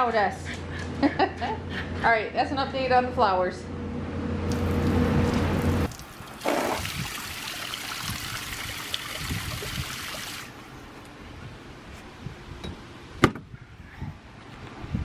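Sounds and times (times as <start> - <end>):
hose spraying water into pool: 4.5 - 10.6.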